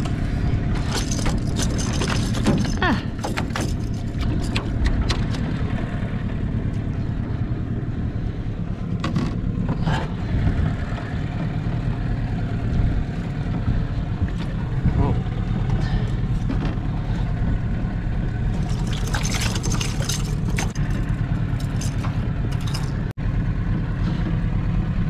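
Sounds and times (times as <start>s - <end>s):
outboard motor running: 0.0s - 25.0s
knocks and rattles on metal boat: 0.7s - 5.7s, 9.0s - 9.9s, 18.5s - 23.1s.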